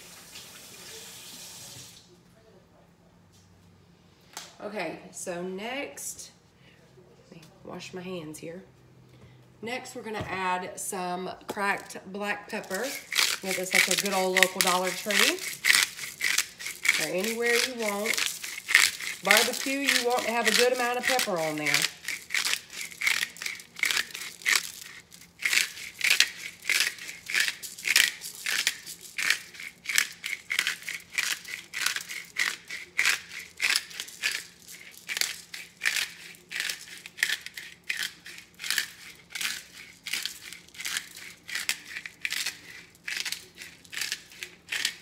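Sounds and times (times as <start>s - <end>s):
pepper grinder crunching peppercorns: 11.5s - 45.0s.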